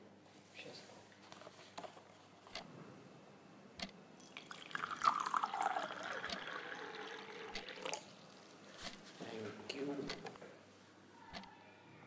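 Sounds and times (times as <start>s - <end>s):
water poured into a glass: 4.2s - 8.2s.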